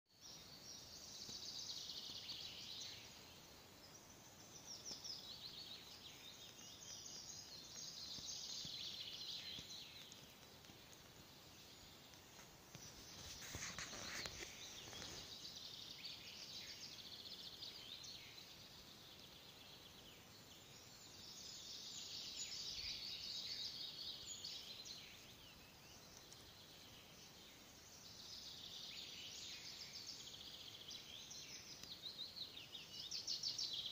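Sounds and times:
brief rustling: 0:12.3 - 0:15.3.

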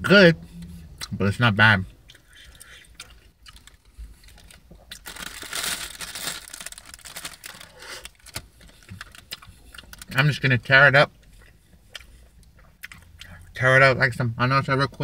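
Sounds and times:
food wrapping crinkling: 0:03.0 - 0:10.2.

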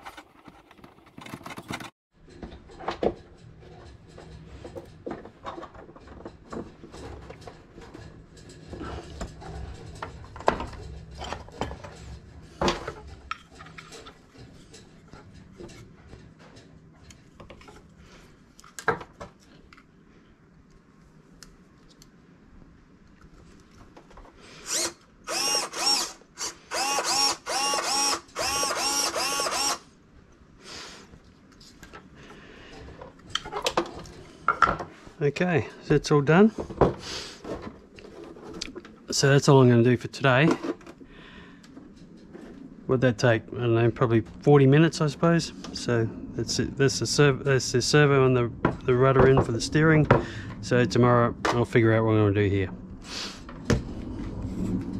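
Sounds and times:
servo whirring in short bursts: 0:24.6 - 0:29.8.

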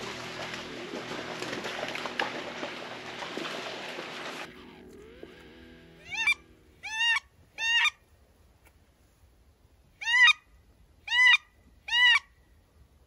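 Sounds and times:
wood duck squeal calls: 0:06.0 - 0:08.0, 0:10.0 - 0:10.4, 0:11.1 - 0:12.3.

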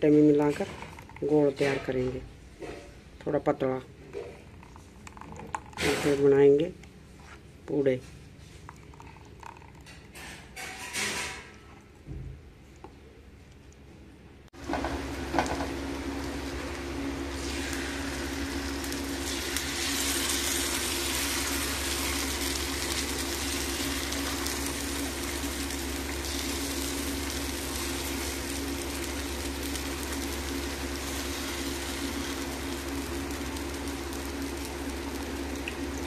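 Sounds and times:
batter sizzling on hot griddle: 0:14.6 - 0:36.0.

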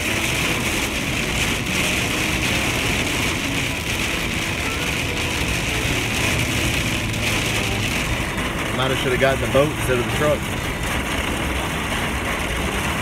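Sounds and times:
heavy rain on truck roof: 0:00.0 - 0:13.0
truck engine and road noise: 0:00.0 - 0:13.0.

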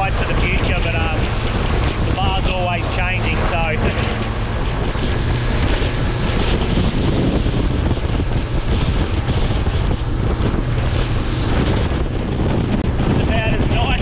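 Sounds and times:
outboard boat engine: 0:00.0 - 0:14.0
wind buffeting microphone: 0:00.0 - 0:14.0.

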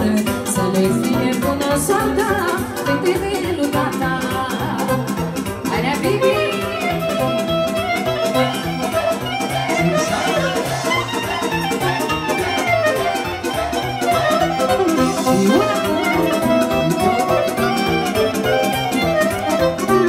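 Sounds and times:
live band playing fast dance music: 0:00.0 - 0:20.0.

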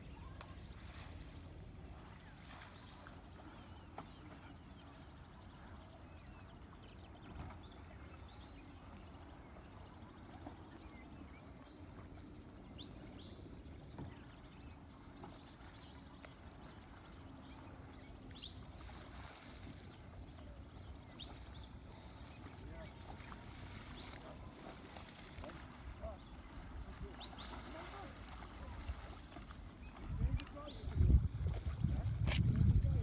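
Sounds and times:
low steady rumble: 0:00.0 - 0:33.0.

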